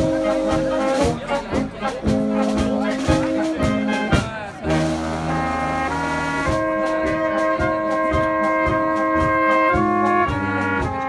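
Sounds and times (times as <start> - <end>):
brass band playing polka: 0.0 - 11.0
trumpets playing long notes: 0.0 - 11.0.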